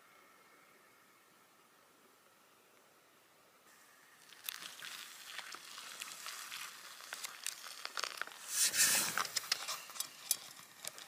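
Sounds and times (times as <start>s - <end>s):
water pouring into a pouch: 4.2s - 8.5s
foil pouch crinkling: 4.2s - 11.0s.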